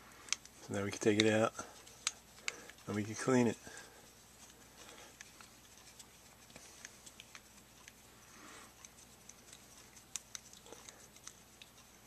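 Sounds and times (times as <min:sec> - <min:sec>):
screwdriver ticks and clicks: 0:00.3 - 0:03.0.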